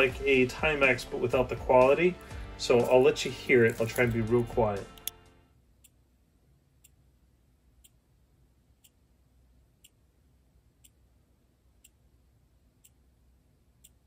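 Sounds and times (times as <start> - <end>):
watch ticking: 6.8 - 7.0, 7.8 - 8.0, 8.8 - 9.1, 9.8 - 10.1, 10.8 - 13.2, 13.8 - 14.0.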